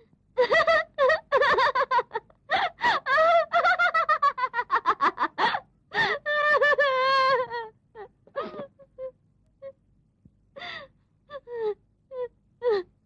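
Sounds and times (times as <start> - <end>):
woman laughing hysterically: 0.4 - 9.1.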